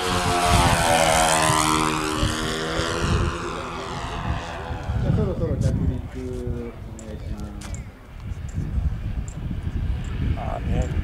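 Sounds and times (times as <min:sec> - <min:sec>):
model airplane propeller engines: 0:00.0 - 0:11.0.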